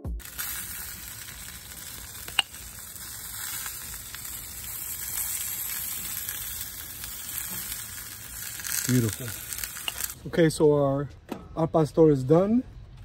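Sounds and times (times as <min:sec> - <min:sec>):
meat sizzling on a grill: 0:00.0 - 0:10.2.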